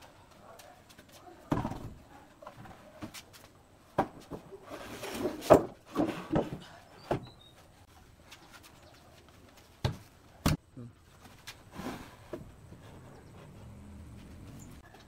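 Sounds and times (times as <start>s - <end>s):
pallet scraping on concrete: 4.0s - 6.7s.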